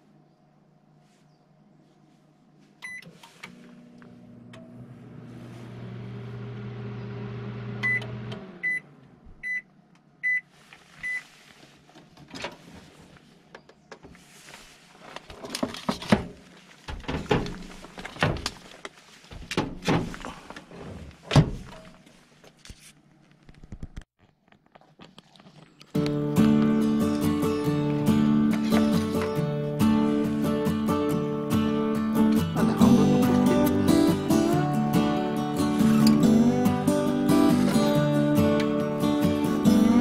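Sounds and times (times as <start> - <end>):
microwave oven humming: 2.8 - 10.4
music: 26.0 - 40.0.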